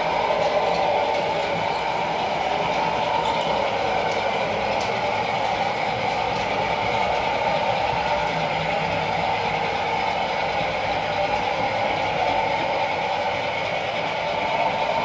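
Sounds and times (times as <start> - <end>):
diesel engine sound from small speaker: 0.0 - 15.0.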